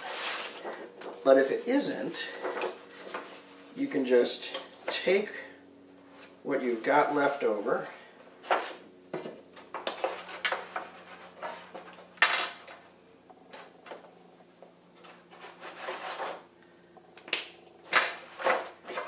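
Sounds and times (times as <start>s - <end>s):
paper rustling and crackling: 0.0s - 1.3s, 2.1s - 3.7s, 15.0s - 16.4s, 17.9s - 19.0s.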